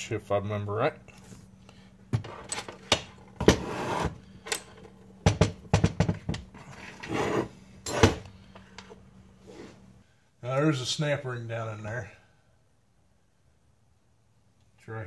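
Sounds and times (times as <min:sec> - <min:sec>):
metal scraping rub: 0:06.6 - 0:08.1.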